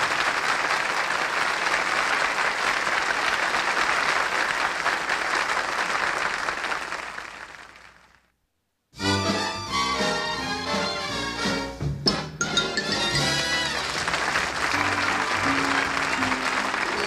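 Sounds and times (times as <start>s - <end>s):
audience applauding: 0.0s - 8.2s, 12.9s - 17.0s.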